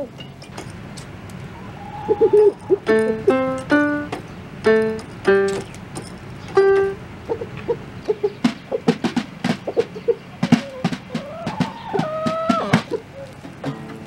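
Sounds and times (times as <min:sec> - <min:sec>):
chickens pecking on drum head: 0:00.0 - 0:14.0
toy keyboard notes: 0:02.4 - 0:05.8, 0:06.5 - 0:07.0.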